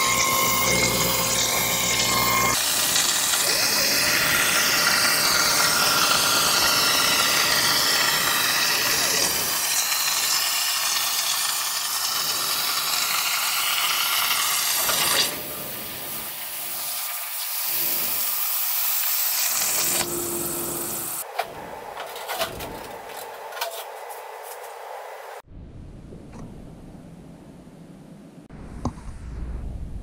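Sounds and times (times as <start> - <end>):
plasma torch hissing: 2.2 - 21.2.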